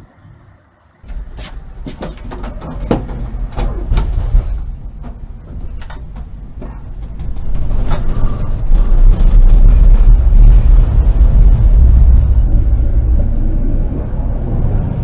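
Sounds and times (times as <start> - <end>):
tram running with rumble: 0.0 - 15.0
rattles clicks and knocks: 1.0 - 12.2.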